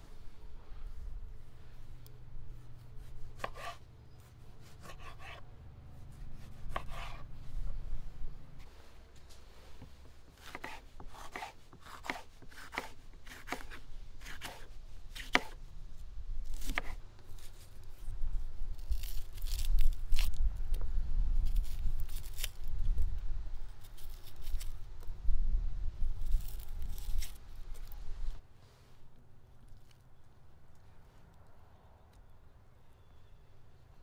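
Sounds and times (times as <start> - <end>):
knife scraping onion skin: 2.6 - 5.4, 6.0 - 7.3, 10.4 - 15.6, 16.4 - 20.4, 21.4 - 22.8, 23.7 - 24.8, 26.2 - 28.0
knife slicing pepper on board: 3.4 - 3.8, 4.7 - 5.4, 6.4 - 7.3, 10.3 - 15.6, 16.6 - 17.0.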